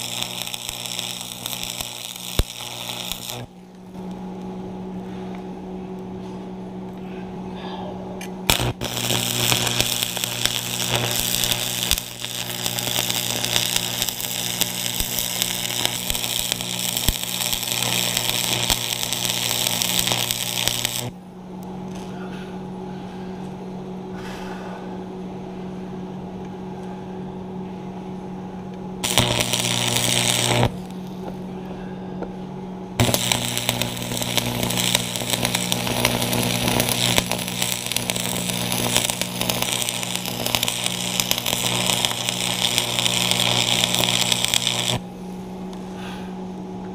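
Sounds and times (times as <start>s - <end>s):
welding arc crackling: 0.0s - 4.2s, 8.4s - 21.2s, 29.0s - 31.4s, 33.0s - 45.1s
steady low hum: 0.0s - 46.9s.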